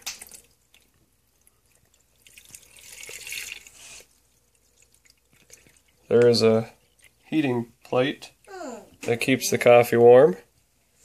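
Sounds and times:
water pouring into reservoir: 0.0s - 7.7s
water splashes: 0.0s - 7.7s.

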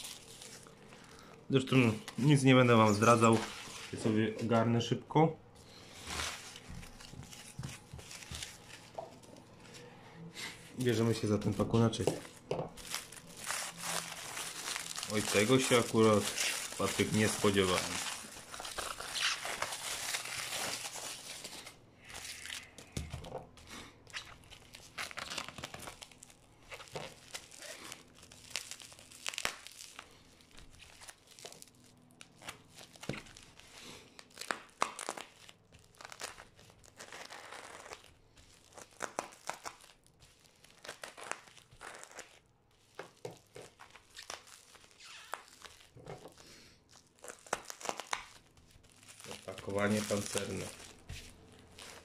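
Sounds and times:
packing tape tearing: 0.0s - 1.2s, 12.0s - 23.5s, 24.1s - 52.0s
aluminium foil crinkling: 0.0s - 4.2s, 5.7s - 9.9s, 10.7s - 52.0s.

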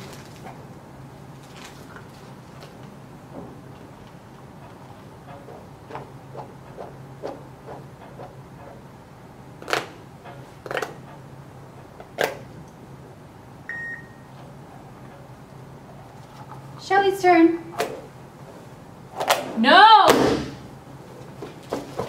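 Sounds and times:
phone timer beep: 13.7s - 14.2s.

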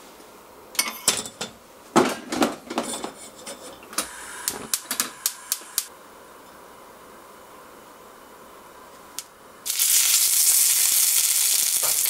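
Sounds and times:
gas hiss: 9.6s - 12.0s.

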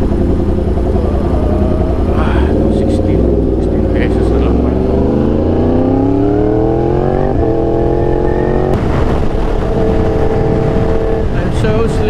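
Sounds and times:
motorcycle engine revving: 0.0s - 12.0s
wind rushing past: 8.7s - 12.0s.

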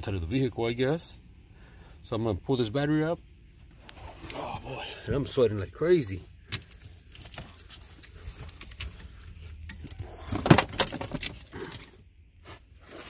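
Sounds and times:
car battery rattling and knocking: 9.7s - 11.5s.

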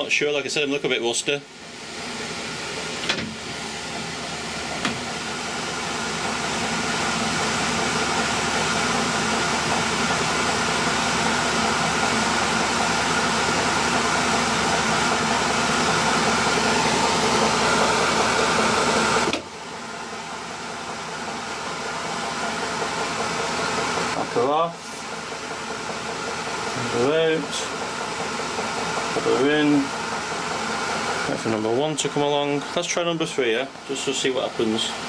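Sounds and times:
metal lathe whirring: 6.2s - 25.5s.

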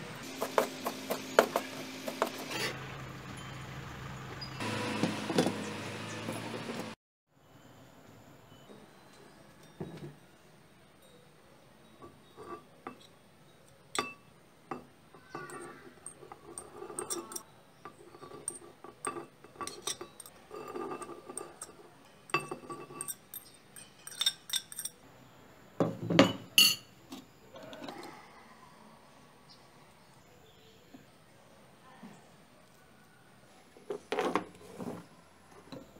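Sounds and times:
spoon scraping and clinking dishware: 11.9s - 13.2s, 13.9s - 25.0s, 25.9s - 28.0s.

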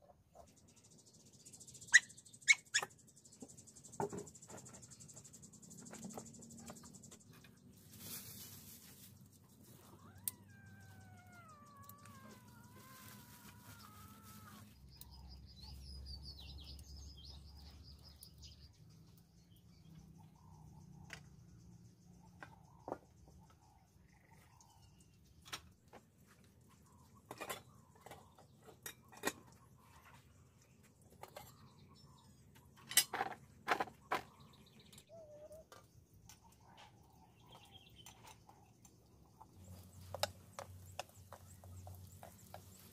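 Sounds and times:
high bird chirping: 9.6s - 18.8s
animal call with falling pitch: 9.8s - 14.8s.

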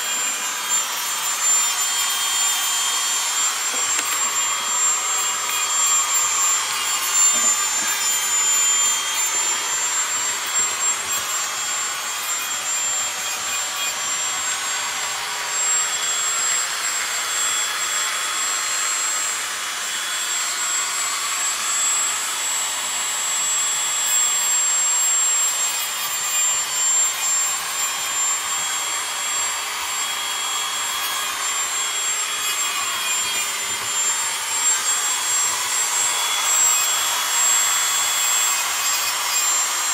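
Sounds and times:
motor-driven tool running: 0.0s - 39.9s.

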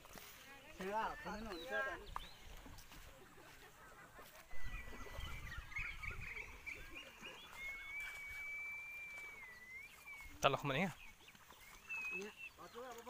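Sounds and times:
birds chirping and calling: 0.0s - 13.0s
high whistle-like note: 7.9s - 10.1s.

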